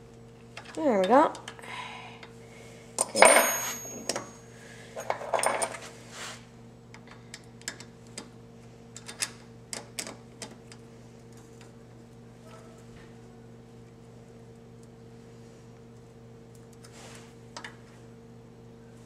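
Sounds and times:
steel tools clinking on metal: 3.0 - 4.4.

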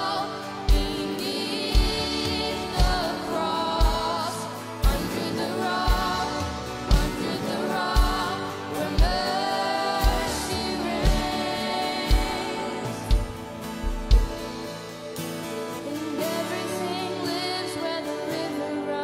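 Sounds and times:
women singing together: 0.0 - 14.0, 15.8 - 19.0
keyboard: 0.0 - 19.0
kick drum beat: 13.1 - 14.6.

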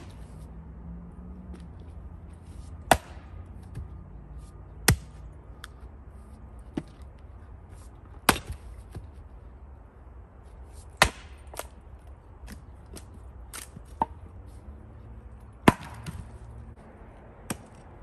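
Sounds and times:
axe chopping firewood: 0.0 - 0.3, 2.8 - 3.9, 4.8 - 5.2, 8.1 - 9.1, 10.9 - 11.8, 15.6 - 16.3, 17.4 - 17.8.

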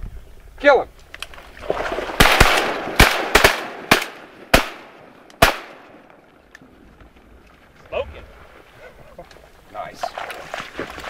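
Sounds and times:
shotgun blasts: 2.1 - 6.1.

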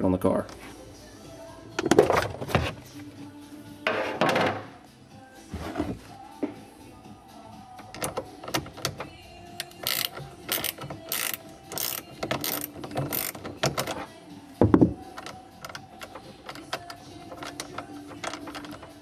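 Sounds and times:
ratchet wrench clicking: 9.6 - 14.0, 15.1 - 19.0.

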